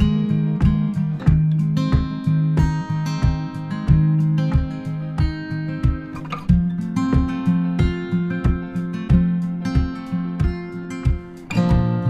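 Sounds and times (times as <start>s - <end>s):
guitar over a steady beat: 0.0s - 12.0s.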